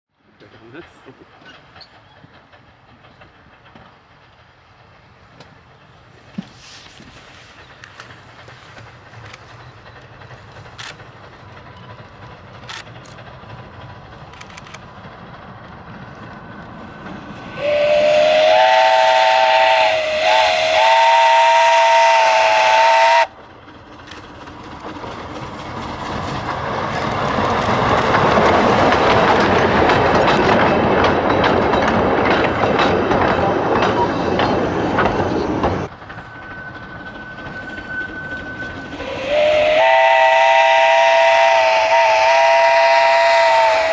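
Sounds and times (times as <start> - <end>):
train running noise: 0.2 - 43.9
steam hiss: 0.6 - 23.4, 33.9 - 43.9
steam locomotive whistle: 17.4 - 23.3, 37.3 - 43.9.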